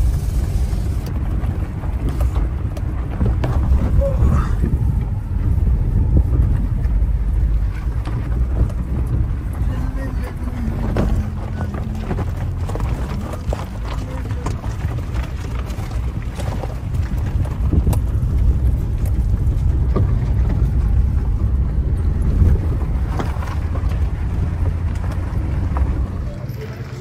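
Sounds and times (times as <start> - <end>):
car rumbling on rough road: 0.0 - 27.0
knocks and rattles: 6.3 - 26.2.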